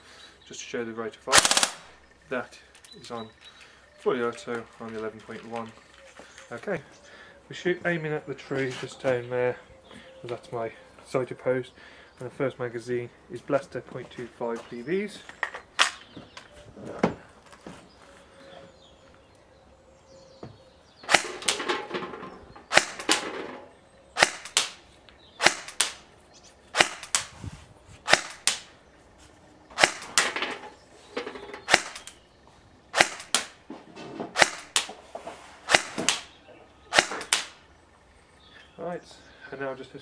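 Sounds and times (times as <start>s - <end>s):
airsoft rifle shots: 1.3s - 2.0s, 21.0s - 22.0s, 22.7s - 23.6s, 24.2s - 24.8s, 25.4s - 26.1s, 26.7s - 27.3s, 28.0s - 28.7s, 29.7s - 30.5s, 31.6s - 32.2s, 32.9s - 33.6s, 34.3s - 34.9s, 35.7s - 36.3s, 36.9s - 37.6s.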